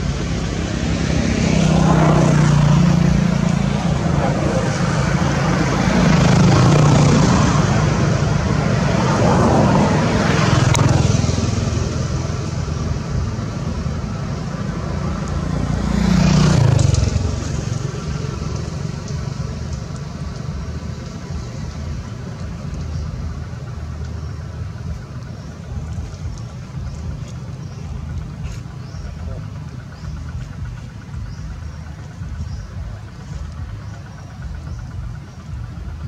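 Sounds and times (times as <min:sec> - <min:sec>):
road vehicles passing: 0:00.0 - 0:36.0
steady low rumble: 0:00.0 - 0:36.0.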